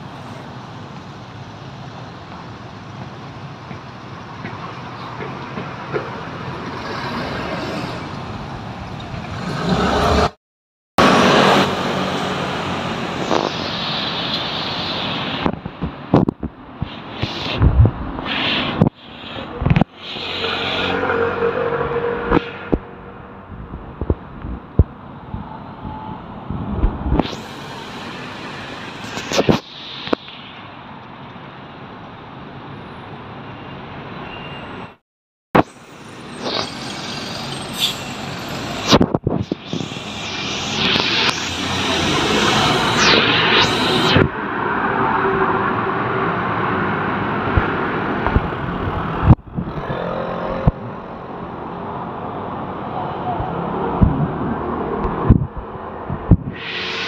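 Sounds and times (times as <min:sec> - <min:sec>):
hum of street traffic: 0:00.0 - 0:10.4, 0:11.0 - 0:35.0, 0:35.6 - 0:57.0
motor scooters passing: 0:47.6 - 0:51.7.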